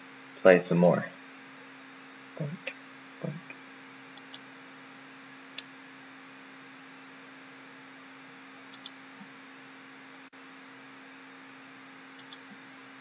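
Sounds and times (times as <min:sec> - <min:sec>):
low hum and hiss: 0:00.0 - 0:13.0
computer mouse clicking: 0:04.2 - 0:04.4, 0:08.7 - 0:09.0, 0:12.2 - 0:12.6.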